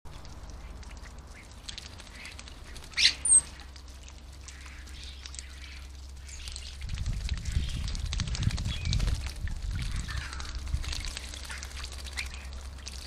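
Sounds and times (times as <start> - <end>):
steady low hum: 0.1 - 13.0
starlings calling: 0.5 - 3.6, 9.9 - 12.5.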